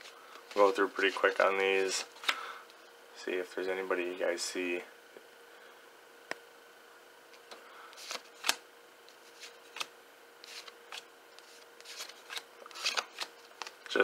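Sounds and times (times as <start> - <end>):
faint steady hum: 0.0 - 14.0
cards flicking off a stack: 8.0 - 8.6.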